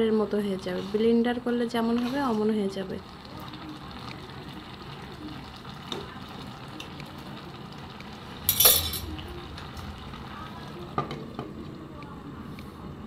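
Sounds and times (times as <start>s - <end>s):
food bubbling in a wok: 0.1s - 13.0s
spatula clattering in wok: 8.5s - 9.1s.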